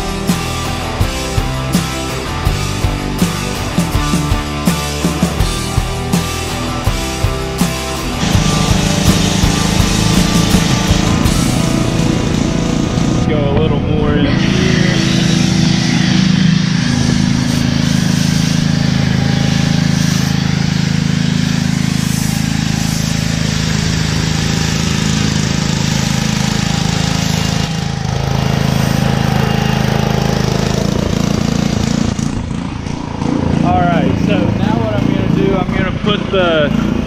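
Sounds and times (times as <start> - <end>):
pressure washer engine running: 0.0 - 37.0
foam cannon spraying hiss: 16.7 - 26.2, 28.5 - 29.9.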